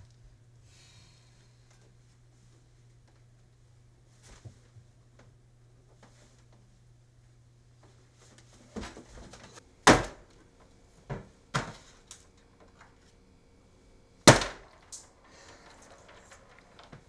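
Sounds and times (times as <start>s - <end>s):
eggs cracking on countertop: 14.3s - 17.0s.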